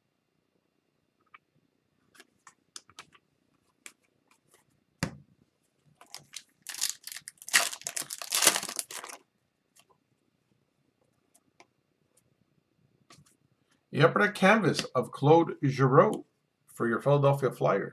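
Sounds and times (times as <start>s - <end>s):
foil wrapper tearing and crinkling: 6.0s - 9.2s.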